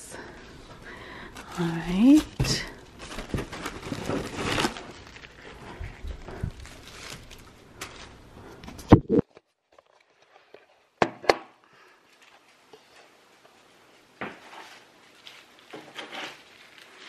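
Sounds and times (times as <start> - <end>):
bubble wrap handling noise: 0.7 - 10.8, 14.4 - 17.0.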